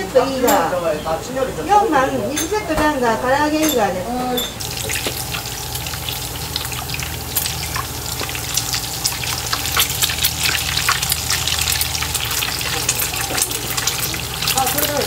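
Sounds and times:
egg sizzling in hot oil: 4.6s - 15.0s.

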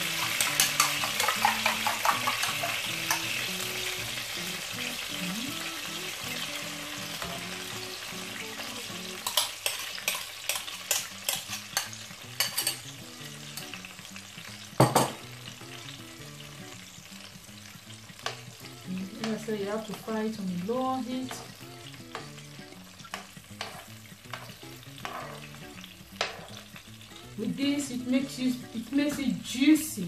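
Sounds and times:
oil sizzling in a frying pan: 0.0s - 30.0s
fork scraping glass bowl: 23.6s - 25.5s.

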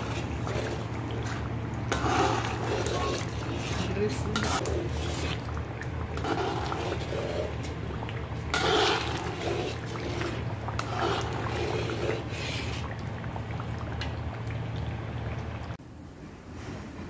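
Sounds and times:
spatula swishing in a wok: 0.0s - 13.2s
oil bubbling in a wok: 0.0s - 16.0s
steady low hum: 0.0s - 17.0s.

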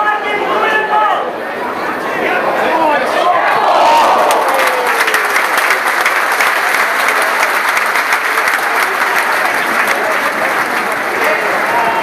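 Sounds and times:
crowd clapping: 3.9s - 12.0s.

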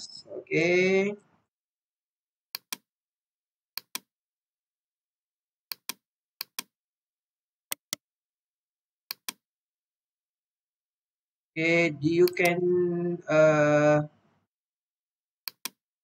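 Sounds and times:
computer mouse button clicking: 2.6s - 2.9s, 3.8s - 4.1s, 5.7s - 6.7s, 7.7s - 8.0s, 9.1s - 9.4s, 15.5s - 15.8s.

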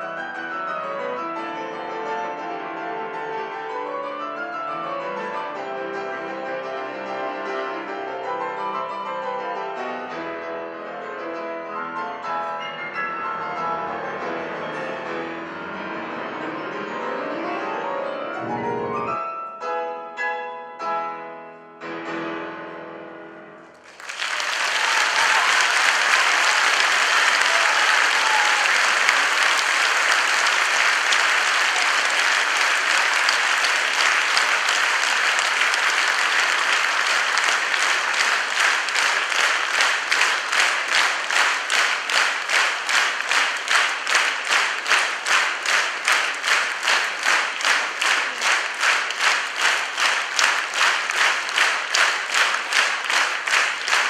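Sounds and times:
audience applause: 23.8s - 54.0s
rhythmic clapping in unison: 23.8s - 54.0s.

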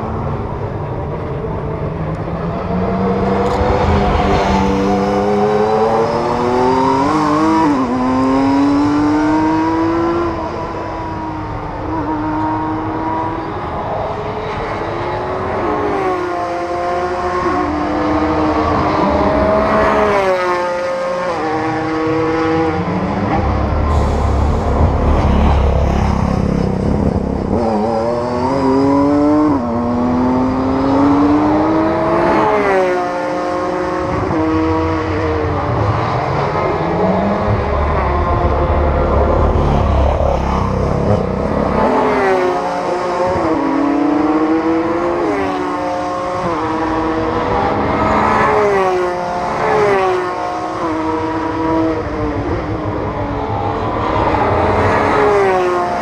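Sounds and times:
racing car engines revving: 0.0s - 56.0s
deep low rumble: 23.6s - 27.5s.

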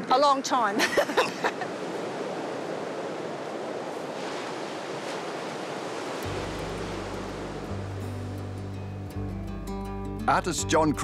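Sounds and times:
waves breaking on shore: 0.0s - 9.1s
low held music notes: 6.2s - 11.0s.

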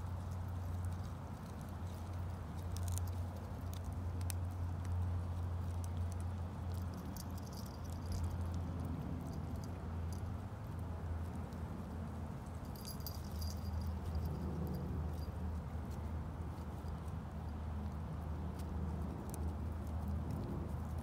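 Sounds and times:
puppy teeth clicking on wood: 0.1s - 9.5s, 16.9s - 21.0s.

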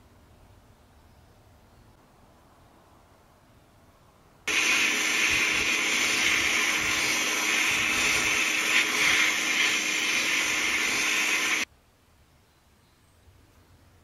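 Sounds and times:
sandblast gun hissing: 4.5s - 11.7s.

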